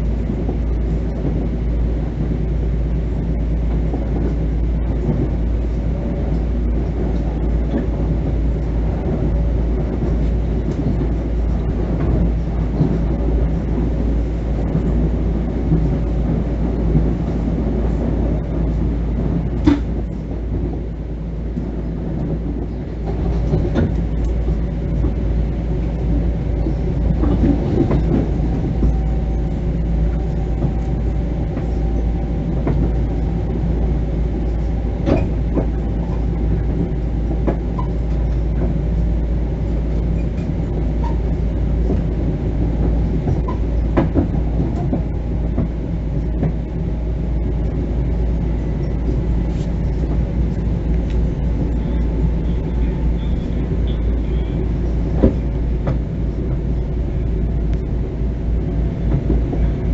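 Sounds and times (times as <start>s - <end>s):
train interior rumble: 0.0s - 59.9s.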